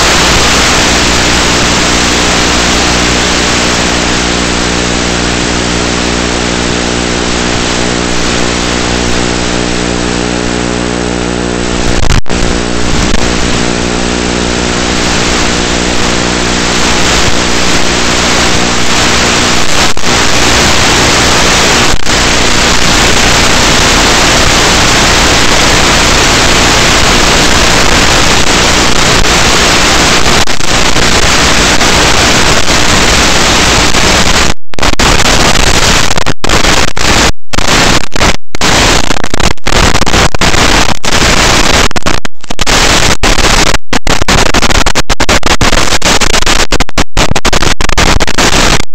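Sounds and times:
humming tone: 0.0 - 19.5
static hiss: 0.0 - 48.8.

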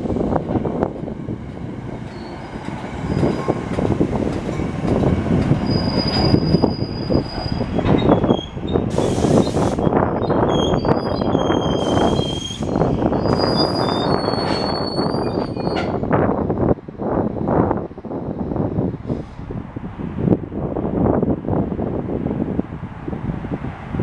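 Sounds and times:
train wheels rumbling on rails: 0.0 - 24.0
high squeals from wheels and brakes: 2.1 - 3.6, 5.5 - 16.0.

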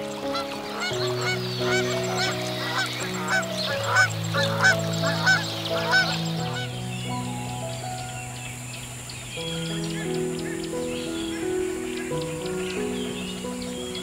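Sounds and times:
waterfowl honking calls: 0.0 - 6.7
background music with chords: 0.0 - 14.0.

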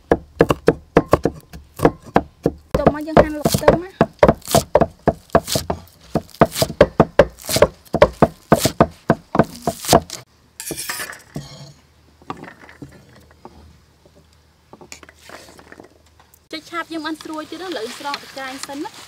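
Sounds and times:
cleaver chopping on wooden board: 0.0 - 10.2.

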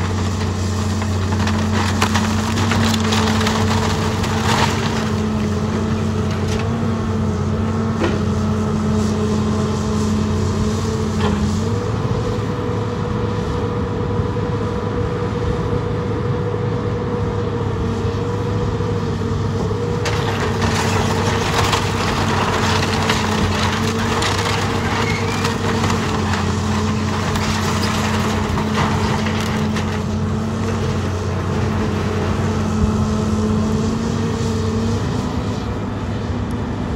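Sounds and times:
bucket crushing wood and sheet metal: 0.0 - 6.8, 19.8 - 32.5
excavator diesel engine running: 0.0 - 36.9.

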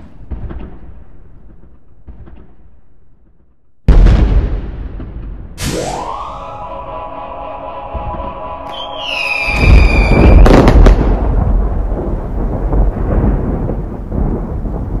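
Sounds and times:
low rumble: 3.2 - 15.0
falling whistle: 5.6 - 10.7
firework bangs: 7.8 - 15.0.

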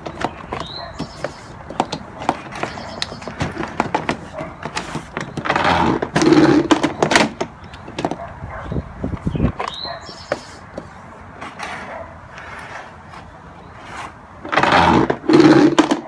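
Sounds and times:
rustling scrape: 2.4 - 6.7, 11.4 - 16.0.

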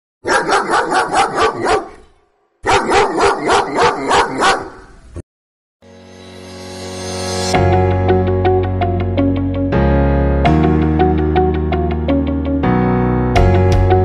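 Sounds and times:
dog barking: 0.2 - 4.9
music: 5.8 - 14.0.

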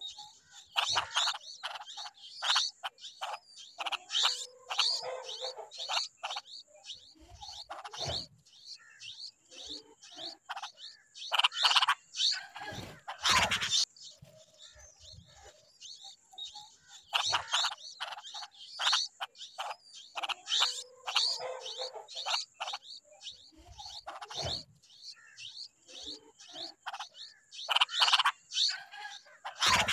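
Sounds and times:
nestlings harsh begging chirps: 0.0 - 29.9.

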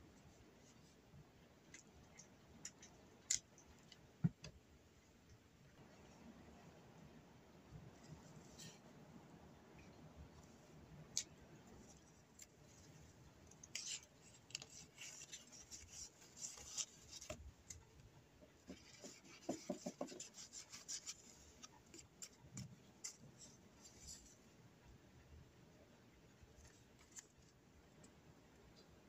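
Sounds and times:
paper rustling and crinkling: 13.6 - 17.9.

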